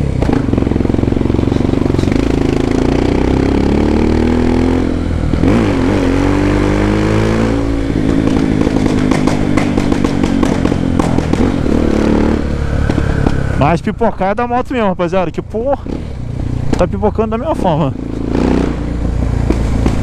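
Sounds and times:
motorcycle engine revving: 0.0s - 20.0s
exhaust pops: 8.0s - 12.0s, 16.7s - 17.1s, 18.2s - 20.0s.

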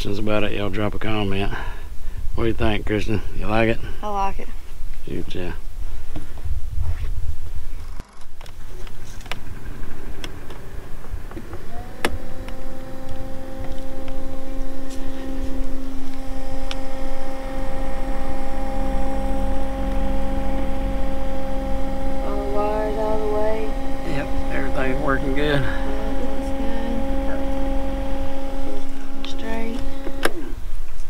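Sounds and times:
electric motor whine: 7.4s - 31.0s
motor switch click: 11.3s - 14.3s, 28.8s - 30.6s.

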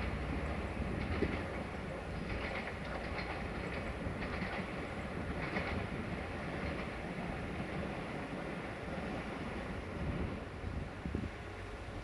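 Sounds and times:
train wheels clicking over rail joints: 0.0s - 9.6s
low train rumble: 0.0s - 12.0s.

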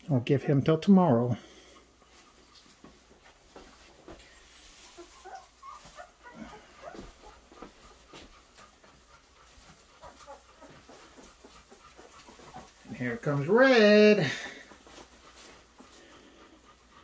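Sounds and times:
puppies squeaking and whimpering: 4.2s - 17.0s.

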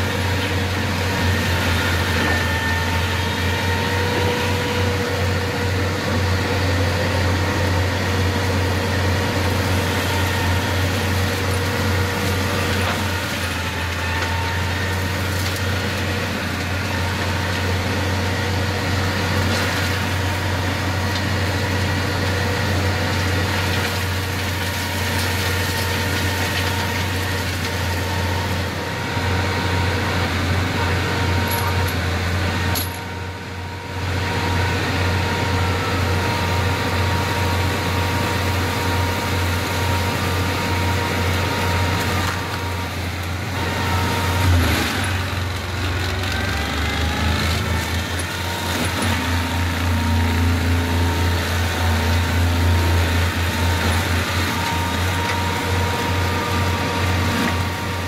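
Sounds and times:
tractor diesel engine drone: 0.0s - 58.0s.

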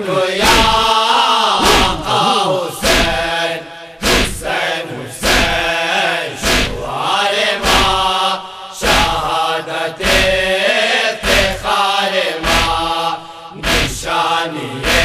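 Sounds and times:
voices chanting a lament: 0.0s - 15.0s
sharp beat: 1.6s - 3.3s, 7.6s - 8.1s, 12.4s - 13.0s, 13.6s - 14.0s.

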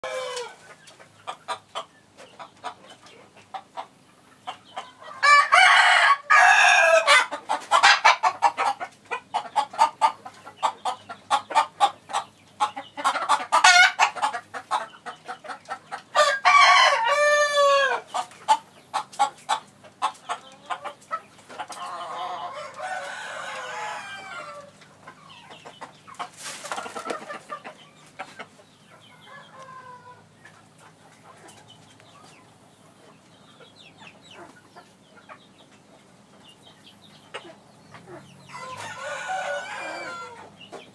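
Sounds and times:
rooster crowing: 0.0s - 0.6s, 5.0s - 7.3s, 16.2s - 18.0s, 21.9s - 24.7s, 29.2s - 30.2s, 38.5s - 40.5s.

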